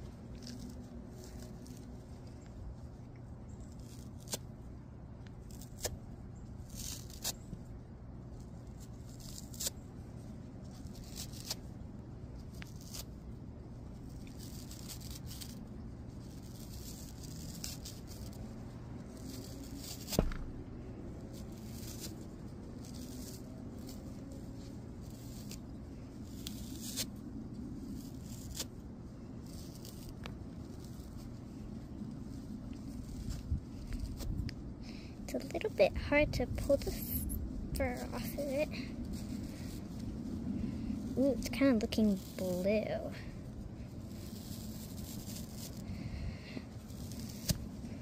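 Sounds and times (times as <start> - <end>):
fur rustling and tearing: 0.0 - 35.8, 36.6 - 48.0
sharp tap: 20.1 - 20.5.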